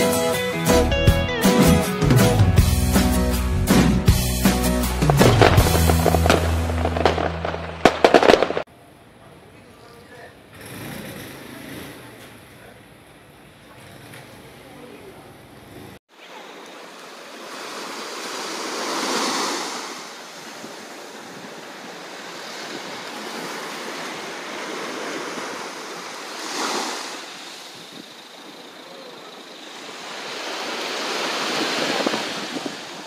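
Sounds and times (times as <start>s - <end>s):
sea waves washing ashore: 4.6s - 8.7s, 16.1s - 33.0s.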